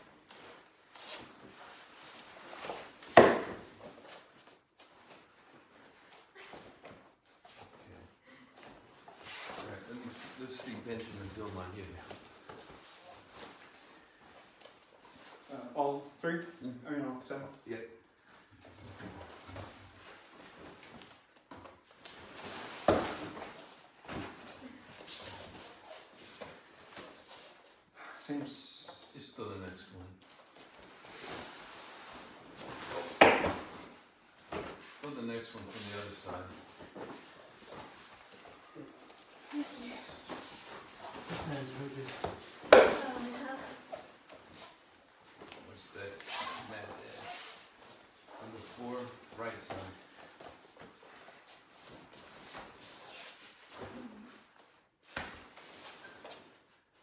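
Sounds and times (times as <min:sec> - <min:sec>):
shuffling feet on mat: 0:00.0 - 0:16.2, 0:18.1 - 0:29.3, 0:30.2 - 0:57.0
rustle of cotton clothing: 0:34.0 - 0:56.9.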